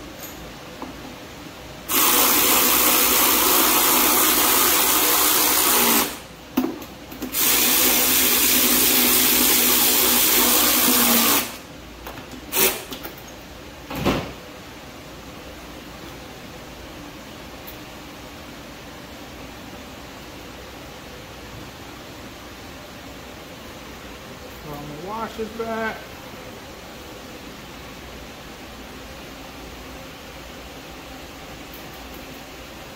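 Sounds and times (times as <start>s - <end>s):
cordless electric ratchet running: 1.9s - 6.2s, 7.4s - 11.6s.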